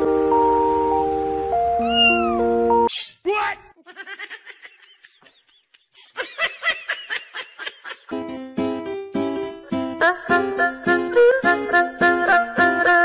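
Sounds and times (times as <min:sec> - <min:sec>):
background music: 0:00.0 - 0:02.9, 0:08.1 - 0:13.0
cat meowing: 0:01.8 - 0:02.5.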